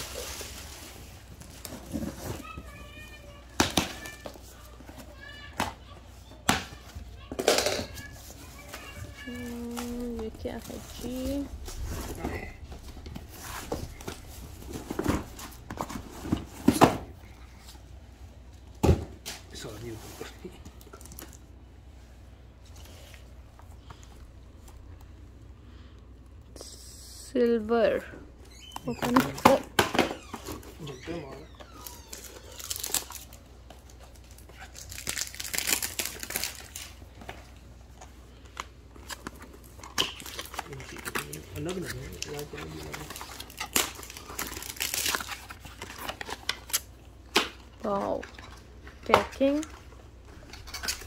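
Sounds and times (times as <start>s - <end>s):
package being handled and opened: 28.6s - 51.0s.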